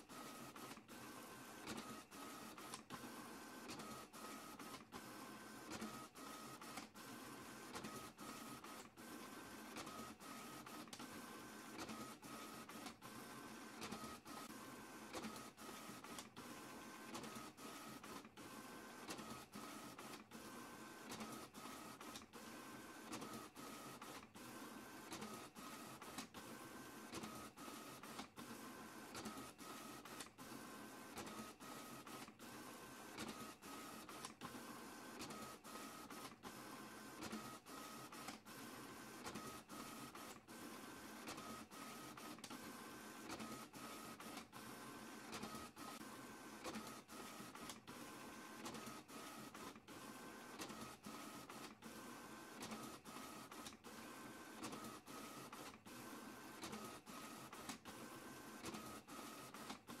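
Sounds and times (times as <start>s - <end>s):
high printer whir: 0.0s - 60.0s
printer feeding sheets: 0.0s - 60.0s.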